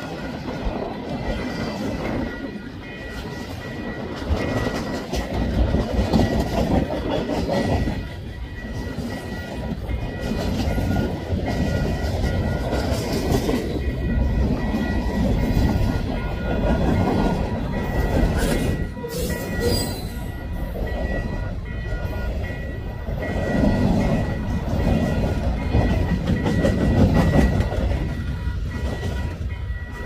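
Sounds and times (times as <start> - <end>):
freight train wheels rumbling and clicking: 0.0 - 30.0
thin high ringing tone: 13.8 - 30.0.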